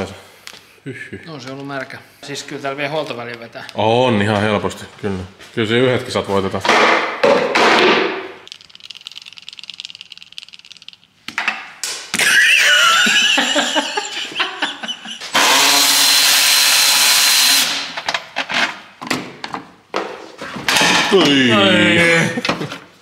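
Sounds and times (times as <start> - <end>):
fast ratchet clicking: 8.5 - 11.1
power tool whirring: 15.3 - 18.0.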